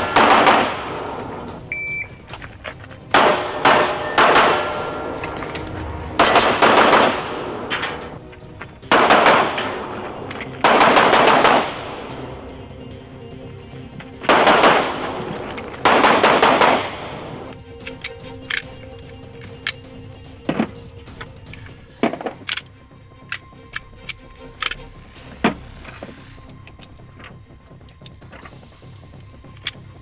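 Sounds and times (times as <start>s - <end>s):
rapid pistol shots: 0.0s - 1.4s, 3.1s - 5.1s, 6.2s - 7.7s, 8.9s - 9.9s, 10.6s - 12.2s, 14.3s - 15.2s, 15.8s - 17.4s.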